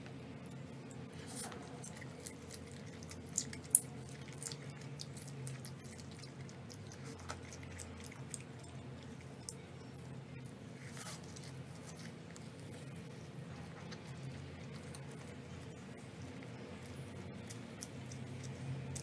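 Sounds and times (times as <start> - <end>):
wet chewing: 0.0 - 10.1, 10.7 - 19.0.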